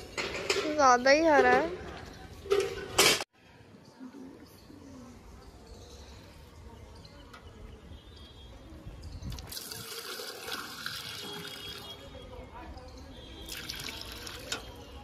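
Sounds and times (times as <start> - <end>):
water pouring into pot: 9.3 - 12.1, 13.4 - 14.9.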